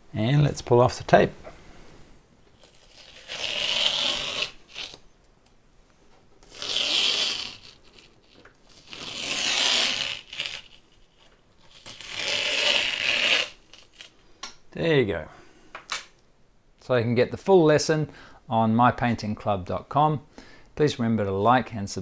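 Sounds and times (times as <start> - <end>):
masking tape being peeled: 2.6 - 5.0, 6.4 - 14.2.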